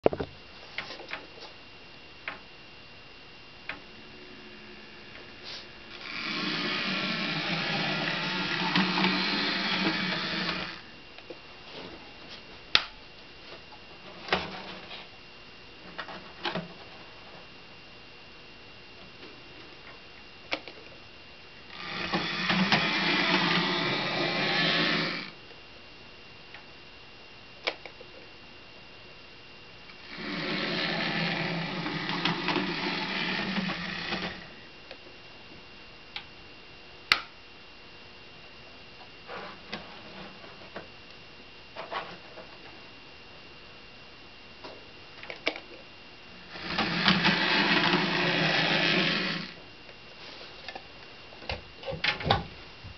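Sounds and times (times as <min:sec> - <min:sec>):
model locomotive motor whirring: 0:04.2 - 0:10.9, 0:21.7 - 0:25.4, 0:29.9 - 0:34.6, 0:46.4 - 0:49.6.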